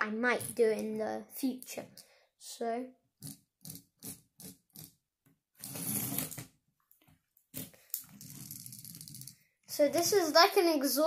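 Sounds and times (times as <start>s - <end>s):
toy wheels rolling on wood: 7.9s - 9.4s.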